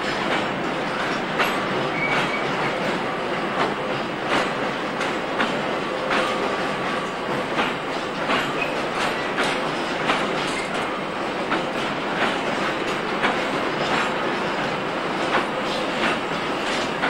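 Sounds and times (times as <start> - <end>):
freight train rumble: 0.0 - 17.0
faint wheel squeal: 1.9 - 2.5
wheels clicking over rail joints: 3.6 - 17.0.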